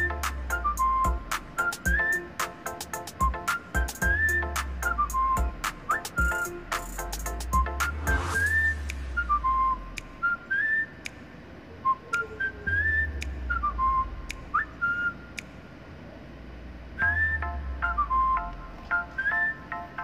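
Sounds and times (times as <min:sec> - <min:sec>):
bass line: 0:00.0 - 0:02.1, 0:03.2 - 0:10.2, 0:17.0 - 0:18.8
whistled melody: 0:00.0 - 0:11.2, 0:11.8 - 0:15.4, 0:17.0 - 0:20.0
percussive clicks: 0:05.6 - 0:09.1.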